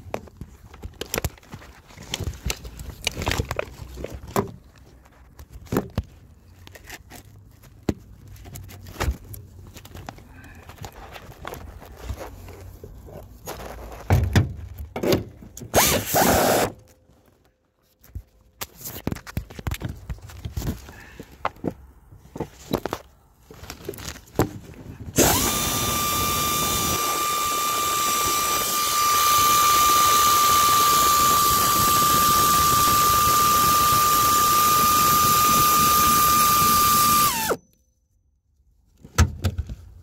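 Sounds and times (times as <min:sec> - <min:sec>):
loud rustling scrape: 0:10.9 - 0:14.1.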